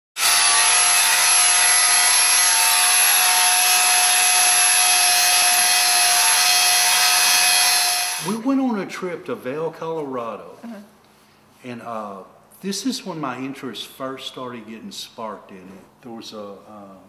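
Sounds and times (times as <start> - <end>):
angle grinder grinding steel: 0.2 - 8.4.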